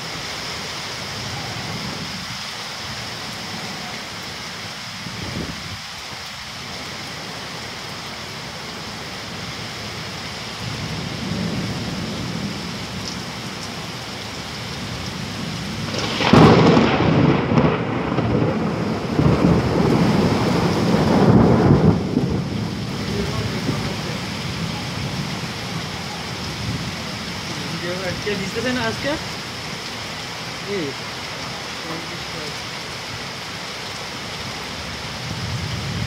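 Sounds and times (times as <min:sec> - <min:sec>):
heavy rain hissing: 0:00.0 - 0:36.0
thunder rumbling: 0:14.9 - 0:28.3.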